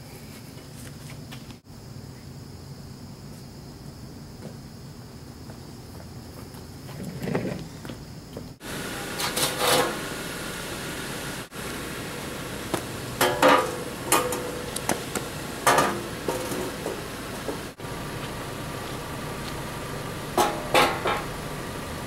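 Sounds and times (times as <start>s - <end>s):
plastic ramps clunking on pavement: 12.7s - 17.8s, 20.4s - 21.3s.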